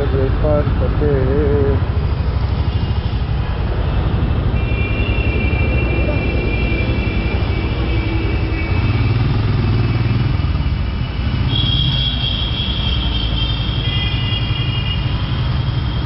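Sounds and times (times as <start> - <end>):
motorcycle engine rumbling: 0.0 - 16.0.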